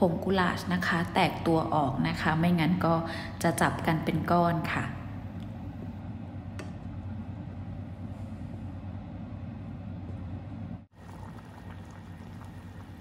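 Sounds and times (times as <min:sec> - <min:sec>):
pot boiling and bubbling: 0:05.2 - 0:13.0.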